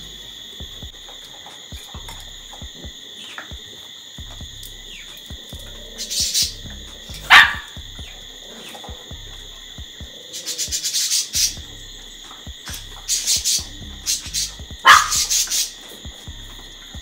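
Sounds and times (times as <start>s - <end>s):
high insect drone: 0.0s - 17.0s
dog bark: 7.3s - 7.8s, 14.8s - 15.4s.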